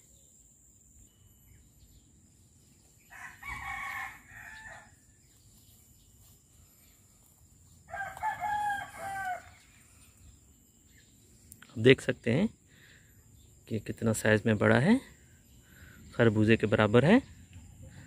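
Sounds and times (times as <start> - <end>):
rooster crowing: 3.1 - 5.0, 7.9 - 9.8.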